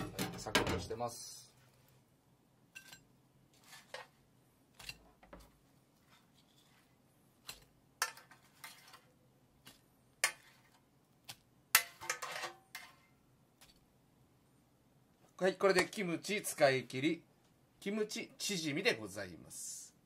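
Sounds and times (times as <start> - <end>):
scrapes on plate: 2.8 - 4.2, 6.0 - 9.1, 11.8 - 13.1.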